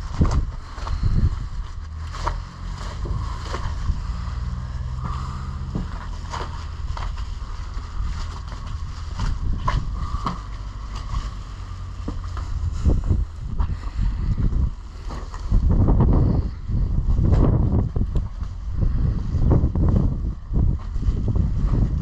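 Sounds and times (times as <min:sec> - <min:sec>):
clicks and scrapes: 0:00.0 - 0:14.0
low hum: 0:00.0 - 0:22.0
wind buffeting microphone: 0:00.0 - 0:22.0.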